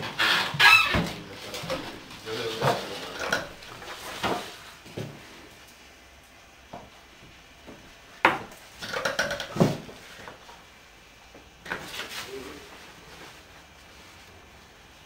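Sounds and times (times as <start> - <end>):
dishes and cutlery clattering: 2.6 - 4.5, 8.8 - 9.8.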